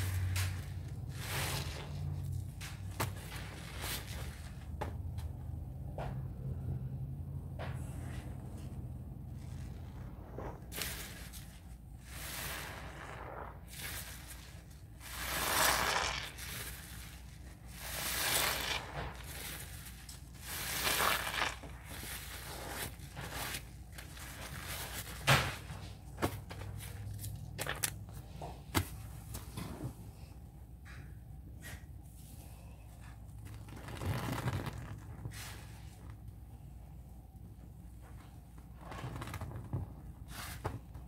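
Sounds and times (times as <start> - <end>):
sponge squelching in soap foam: 0.0 - 4.8, 8.0 - 27.9.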